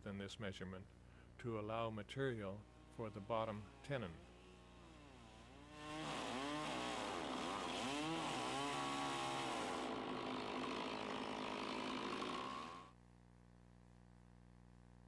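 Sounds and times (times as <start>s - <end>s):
chainsaw cutting log: 3.6s - 12.9s.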